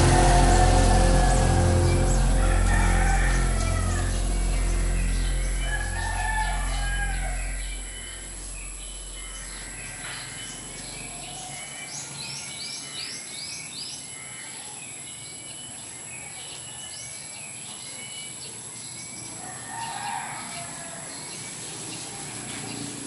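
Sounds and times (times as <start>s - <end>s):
steady high-pitched tone: 0.0s - 11.8s
birds chirping: 0.0s - 19.3s.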